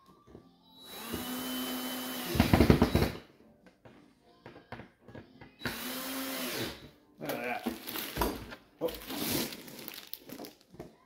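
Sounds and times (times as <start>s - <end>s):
cordless drill driving screw: 0.8s - 3.2s, 5.6s - 6.8s.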